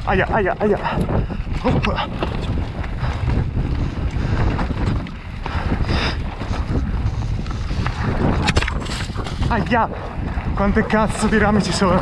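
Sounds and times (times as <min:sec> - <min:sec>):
wind rushing over microphone: 0:00.0 - 0:12.0
bike knocks and rattles: 0:01.0 - 0:09.5.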